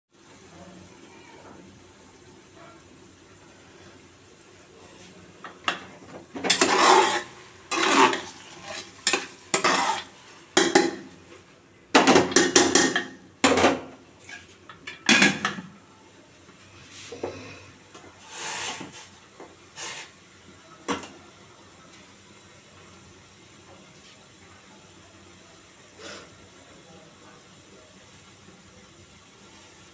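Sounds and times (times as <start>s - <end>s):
metal pot clattering and scraping: 5.5s - 11.1s, 12.0s - 15.7s.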